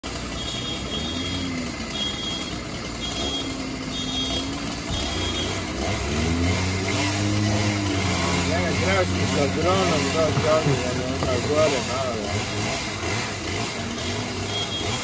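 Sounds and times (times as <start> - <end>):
truck engine running: 0.0 - 15.0
high warning beeps: 0.4 - 5.6, 14.0 - 15.0.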